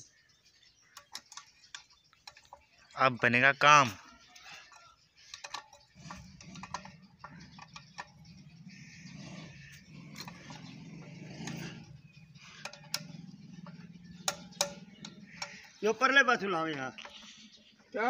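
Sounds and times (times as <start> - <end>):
wrench clicking on metal pipe: 4.7 - 8.2, 12.4 - 15.8.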